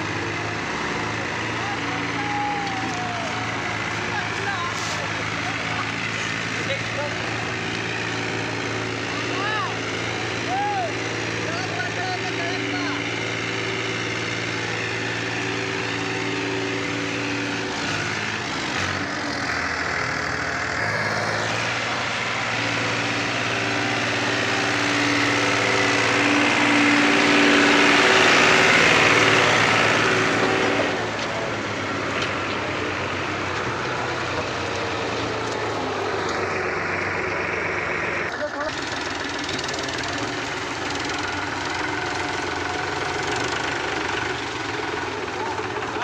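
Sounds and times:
tractor diesel engine running: 0.0s - 46.0s.

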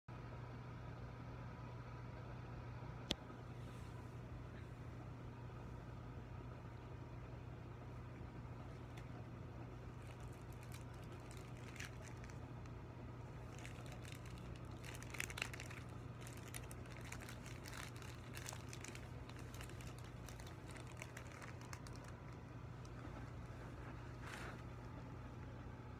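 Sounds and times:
faint low hum: 0.1s - 25.9s
foil balloon crinkling: 8.0s - 25.3s.

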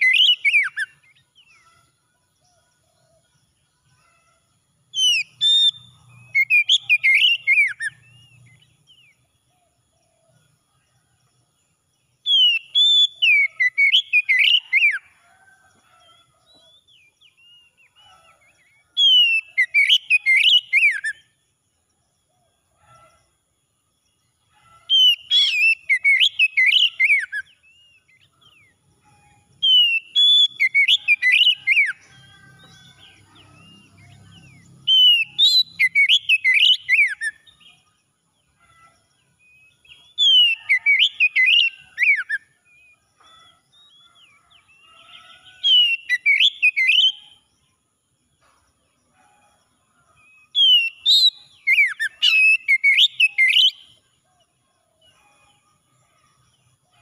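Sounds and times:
bird singing whistled phrases: 0.0s - 1.0s, 5.0s - 8.4s, 12.3s - 15.0s, 19.0s - 21.2s, 25.0s - 27.9s, 29.6s - 32.0s, 34.9s - 37.5s, 45.7s - 47.4s, 50.6s - 53.8s.

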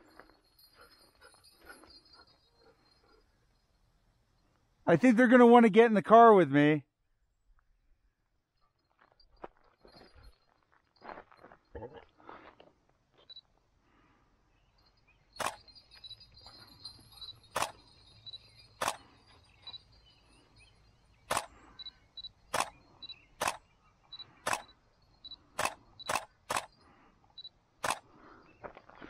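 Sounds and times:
faint outdoor background: 0.0s - 29.0s
sharp clicks: 15.4s - 15.7s, 17.5s - 17.8s, 18.8s - 19.1s, 21.3s - 21.6s, 22.5s - 22.8s, 23.4s - 24.8s, 25.5s - 26.8s, 27.8s - 28.1s.

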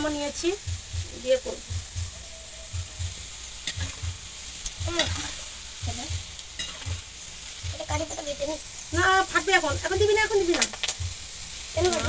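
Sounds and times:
lentils sizzling in hot oil: 0.0s - 12.0s
steel ladle stirring: 2.1s - 7.6s.

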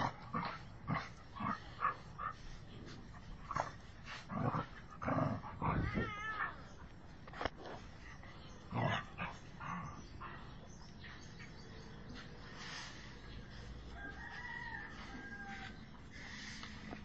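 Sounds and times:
cat growling and yowling: 5.6s - 6.6s.

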